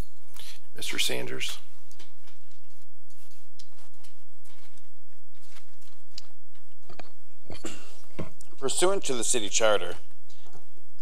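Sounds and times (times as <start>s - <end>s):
soft footsteps: 1.5s - 7.3s.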